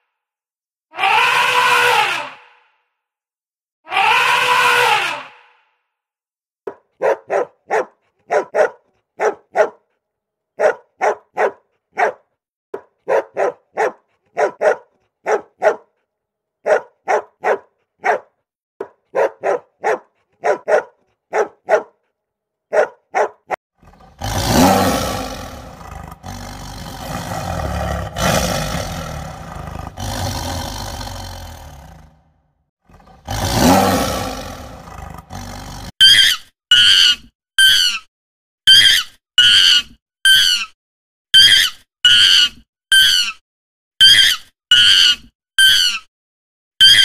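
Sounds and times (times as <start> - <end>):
puppy barking: 6.7 - 9.9, 10.6 - 16.0, 16.6 - 22.0, 22.7 - 23.6
big cat roaring: 23.8 - 35.9.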